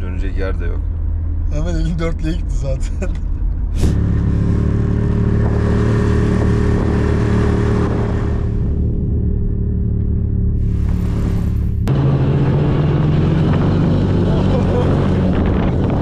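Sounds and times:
snowmobile engine running: 3.8 - 16.0.

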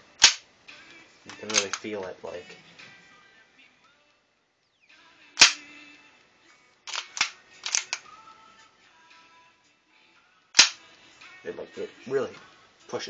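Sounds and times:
faint music: 0.0 - 13.0
pistol slide clacking: 0.2 - 0.4, 1.3 - 1.8, 5.4 - 5.7, 6.9 - 8.0, 10.6 - 10.8.

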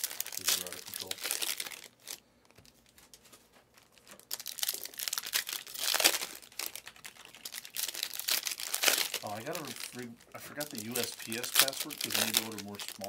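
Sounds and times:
plastic wrapping crinkling and tearing: 0.0 - 13.0.

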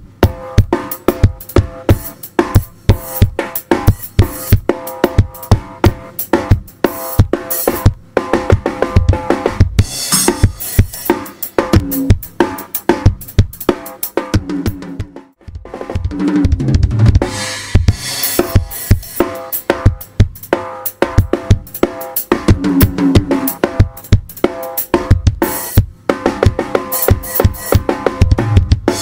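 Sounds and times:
drum kit groove: 0.0 - 29.0
cymbals crashing: 9.9 - 11.3.

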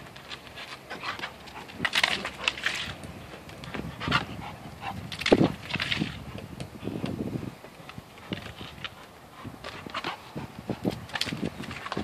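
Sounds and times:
dog panting hard: 3.7 - 5.1, 8.1 - 11.1.

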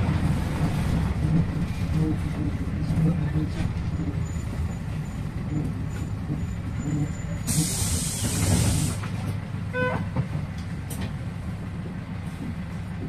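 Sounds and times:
bus engine rumbling: 0.0 - 13.0
compressed air hiss: 7.5 - 9.0.

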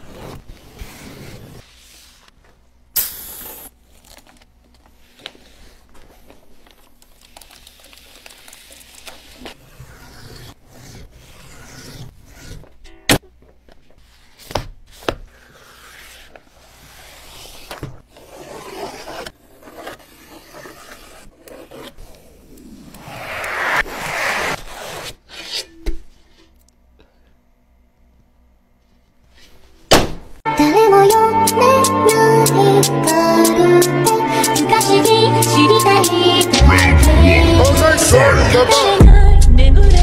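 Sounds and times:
knife cutting vinyl: 0.0 - 1.7, 8.6 - 13.2, 15.0 - 25.9
vinyl rubbed by hand: 15.4 - 25.5.

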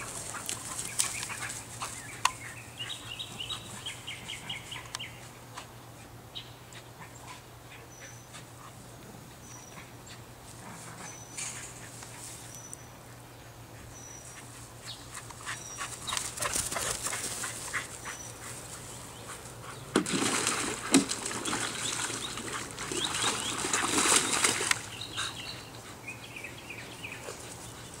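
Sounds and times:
water splashing in pool: 20.0 - 24.9.

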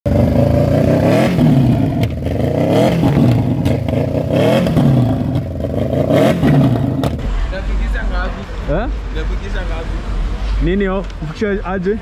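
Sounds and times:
motorcycle engine revving: 0.1 - 7.9.

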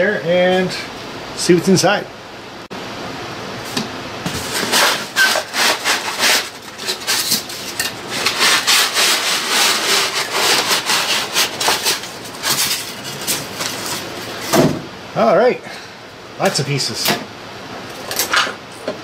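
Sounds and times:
cardboard rubbing and scraping: 4.3 - 14.5.

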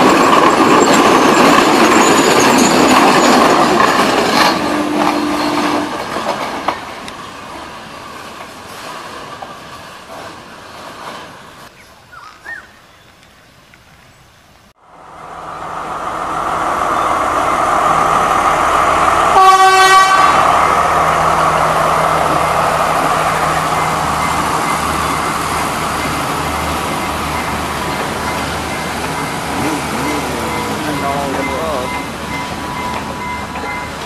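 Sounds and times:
train engine and wheels: 0.0 - 34.0
train horn: 4.5 - 6.2, 19.2 - 20.6.

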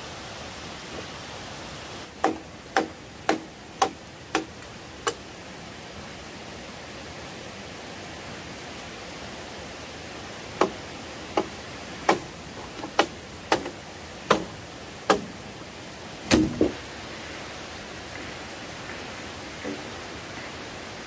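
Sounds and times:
steady hiss: 0.0 - 21.0
machete chopping bamboo: 2.2 - 5.2, 10.6 - 15.4, 16.2 - 16.8.

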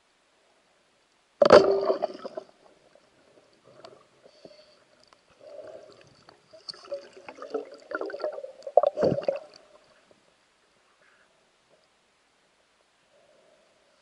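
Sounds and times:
underwater gurgling: 1.4 - 4.5, 5.4 - 10.1
small underwater clicks: 3.5 - 9.8.

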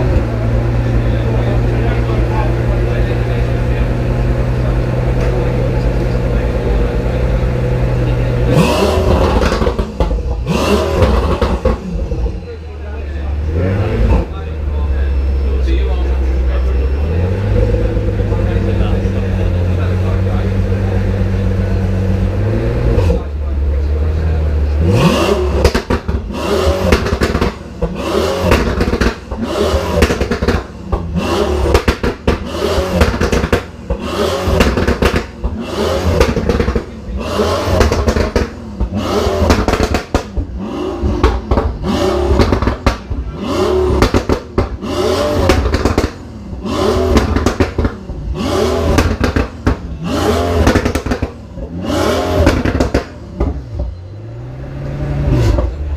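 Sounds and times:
car engine revving: 0.0 - 55.9.

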